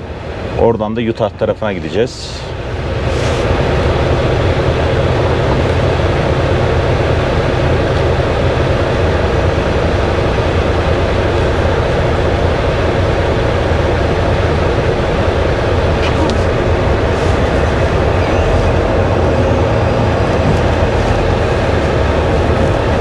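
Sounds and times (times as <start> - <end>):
diesel truck engine droning: 0.0 - 23.0.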